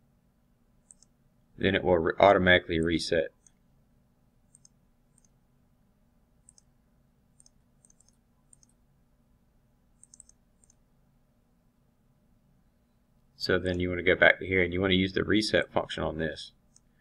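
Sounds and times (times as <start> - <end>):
computer mouse clicks: 0.8 - 1.2, 4.5 - 5.4, 6.4 - 6.7, 7.4 - 8.8, 10.0 - 10.8, 16.7 - 16.9.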